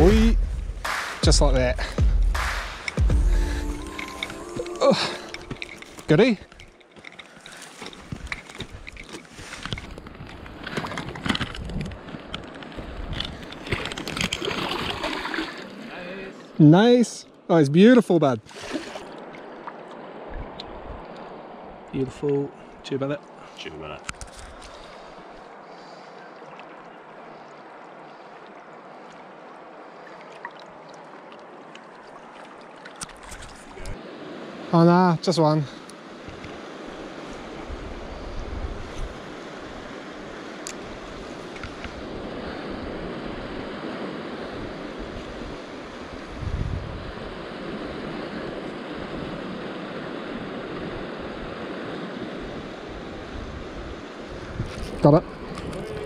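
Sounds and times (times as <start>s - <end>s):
river water over stones: 2.4s - 56.0s
wind buffeting microphone: 36.2s - 40.0s, 40.8s - 56.0s.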